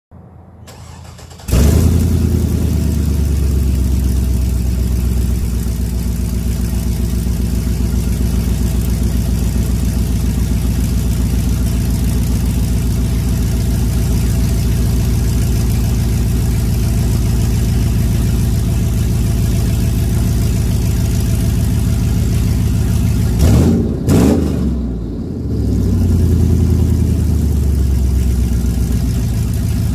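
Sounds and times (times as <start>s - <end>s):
engine revving: 0.6s - 5.6s, 22.3s - 29.3s
engine idling loud: 0.8s - 29.9s.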